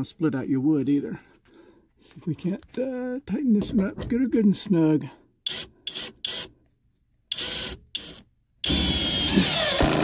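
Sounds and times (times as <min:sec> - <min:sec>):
power drill driving a screw: 0:05.5 - 0:06.5, 0:07.3 - 0:10.0.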